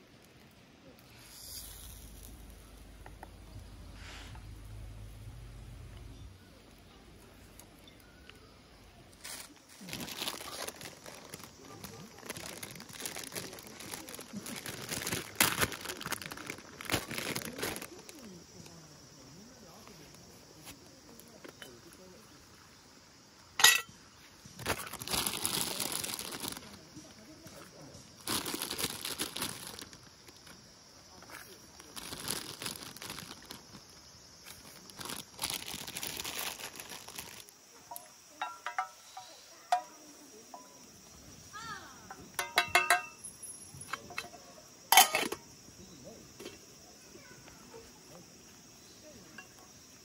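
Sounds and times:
plastic bag crinkling: 0:09.2 - 0:18.3, 0:24.6 - 0:26.8, 0:28.2 - 0:30.6, 0:31.4 - 0:38.0
metal mug clinking: 0:23.6 - 0:23.9, 0:37.9 - 0:39.0, 0:42.4 - 0:43.2, 0:44.9 - 0:45.4.

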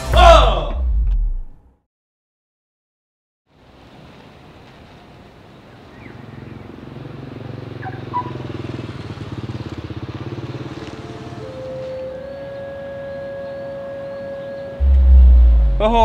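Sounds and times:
vehicle engine pulsing hum: 0:13.3 - 0:16.0.

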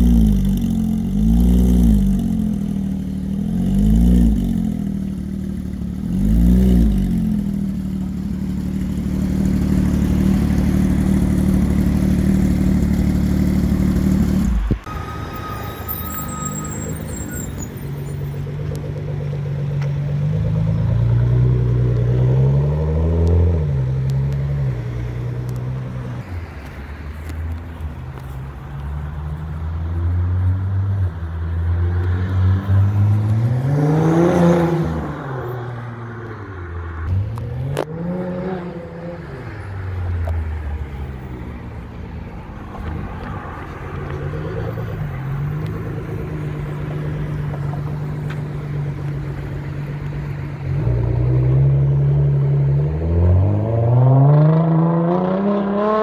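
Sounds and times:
car engine revving: 0:42.8 - 0:56.0.

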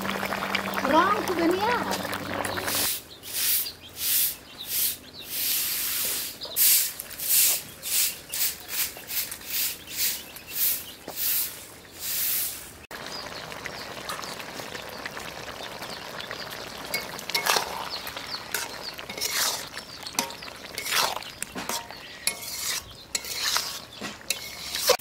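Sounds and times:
curry sizzling: 0:00.0 - 0:03.4, 0:05.4 - 0:25.0
broom sweeping dirt floor: 0:02.7 - 0:12.8, 0:22.4 - 0:25.0
metal ladle scraping wok: 0:16.9 - 0:25.0.

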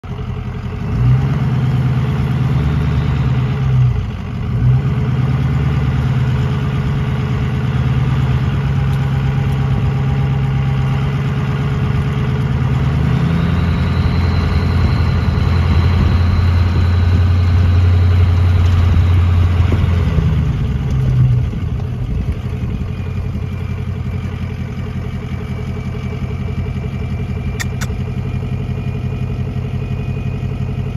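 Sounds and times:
diesel truck engine running: 0:00.0 - 0:30.9
faint high whistle: 0:13.1 - 0:18.1.

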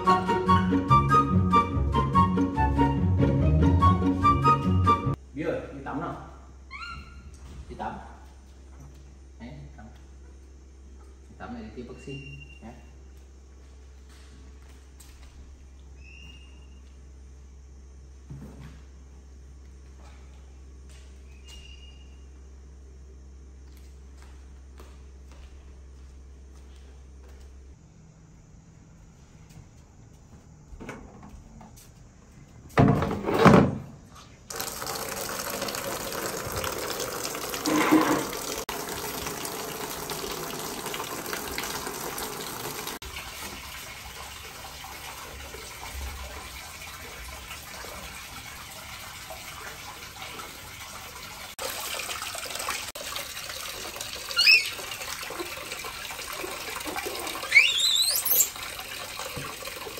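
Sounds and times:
short high squeaks: 0:06.7 - 0:07.4, 0:12.0 - 0:12.9, 0:21.3 - 0:22.3, 0:54.3 - 0:54.9, 0:57.1 - 0:58.7
tap water splashing into a basin: 0:34.5 - 0:59.9.

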